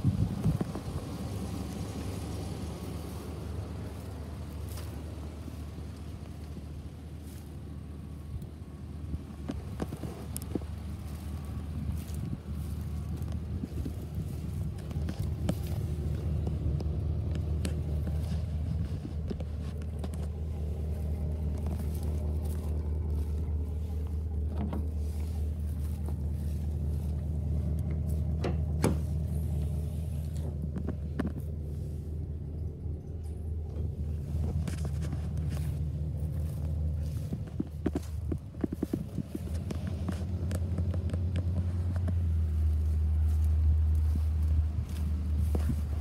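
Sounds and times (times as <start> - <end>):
truck engine idling: 0.0 - 46.0
light clicks and knocks: 13.0 - 31.7, 32.5 - 42.7.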